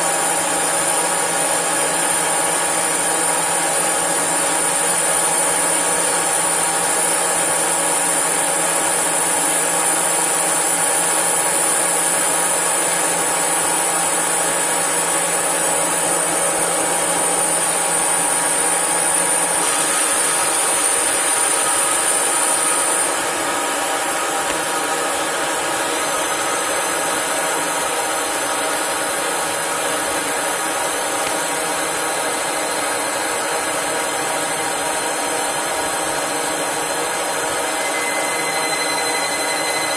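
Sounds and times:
lathe machine whine: 0.0 - 39.9.

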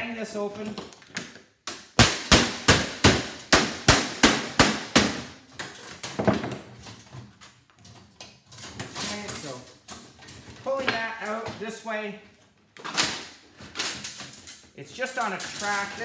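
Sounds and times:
hammer banging on sheet metal: 2.0 - 5.4.

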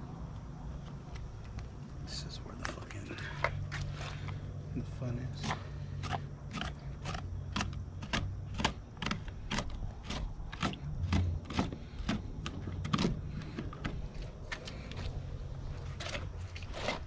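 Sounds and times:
steady low hum: 0.0 - 17.0
knife crunching through meat: 5.4 - 12.2.

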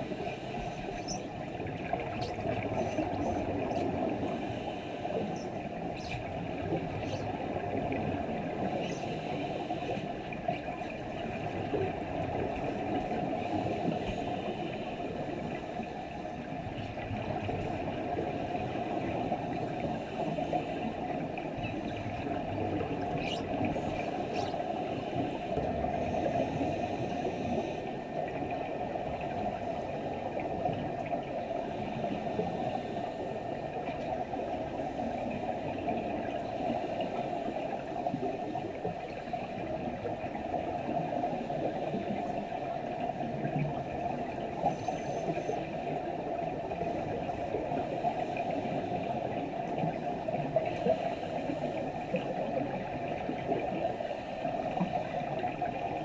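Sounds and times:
muffled underwater noise: 0.0 - 56.0
faint clicks: 21.4 - 25.7.

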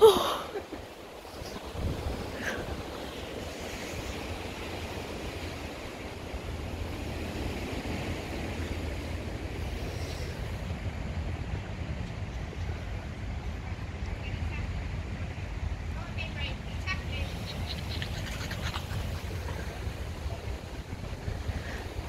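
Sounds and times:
strong wind on microphone: 0.0 - 22.0.

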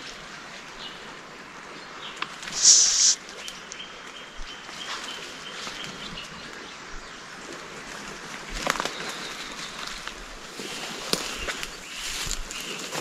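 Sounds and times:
brush rustling: 2.4 - 3.2
footsteps in undergrowth: 8.6 - 13.0.

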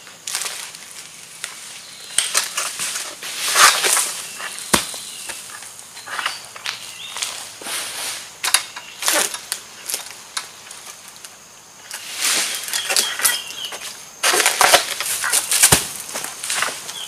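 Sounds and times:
stalk and fronds rustling and cracking: 0.0 - 17.0
fruit bunch crashing loose: 3.5 - 5.4, 14.2 - 16.3.

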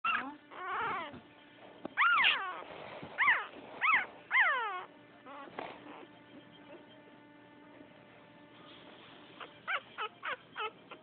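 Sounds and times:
puppy whimpering: 0.0 - 1.2, 2.0 - 7.0, 9.4 - 11.0.

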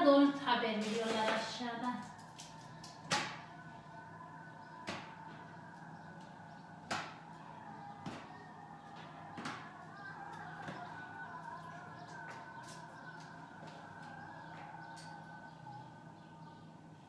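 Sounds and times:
sharp knocks of hard items: 2.9 - 3.5, 4.8 - 5.4, 6.8 - 7.2, 8.0 - 8.4, 9.0 - 9.8.

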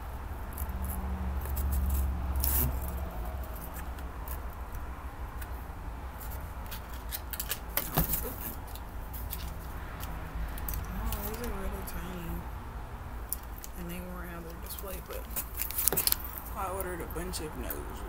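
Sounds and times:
low rumble: 0.0 - 5.8.

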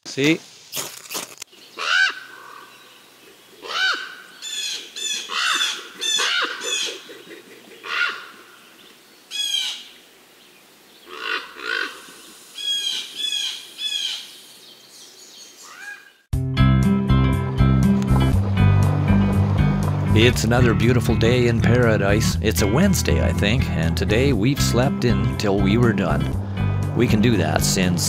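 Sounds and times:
wild birds calling: 1.5 - 16.3, 17.6 - 22.0, 25.2 - 28.0.

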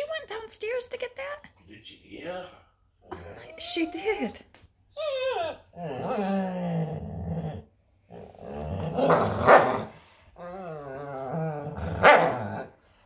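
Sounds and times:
dogs growling: 5.1 - 12.9.

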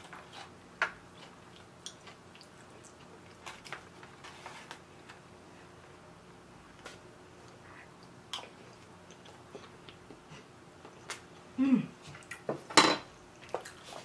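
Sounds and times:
low hum from person: 0.0 - 14.0
chewing food: 0.2 - 3.9, 7.4 - 11.2, 13.3 - 14.0.

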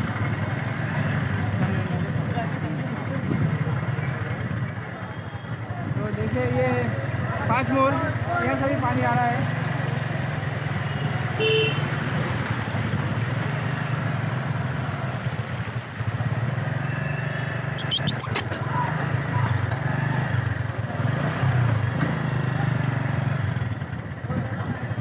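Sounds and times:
wind and road noise: 3.1 - 3.9, 9.5 - 22.2
short beep: 17.7 - 18.9.

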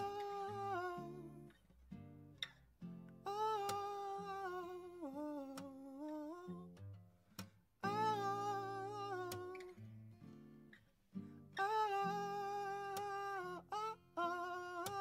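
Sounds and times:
man singing wordlessly: 0.0 - 1.6, 3.2 - 6.8, 7.8 - 9.8, 11.6 - 15.0
acoustic guitar: 0.0 - 15.0.

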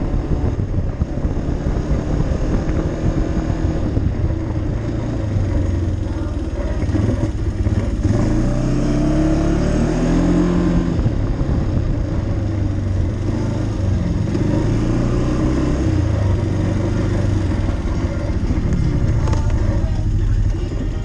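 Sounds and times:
quad bike engine running: 0.0 - 21.0.

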